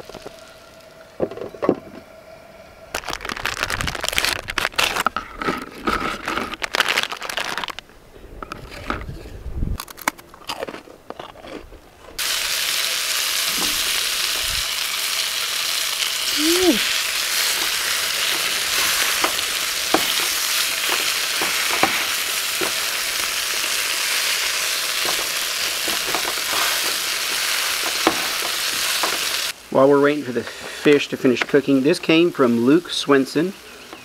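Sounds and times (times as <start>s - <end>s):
fish frying in hot oil: 12.2s - 29.7s.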